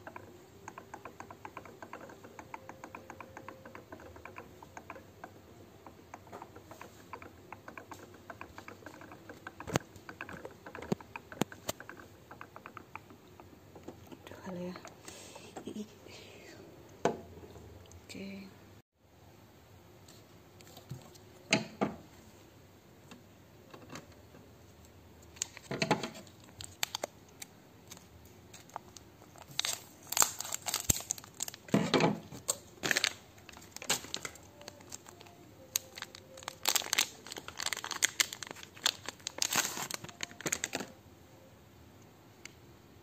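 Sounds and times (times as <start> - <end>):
plastic wrap crinkling and tearing: 25.4 - 31.8, 32.4 - 41.0
scissors snipping plastic wrap: 29.6 - 31.6, 35.8 - 40.8.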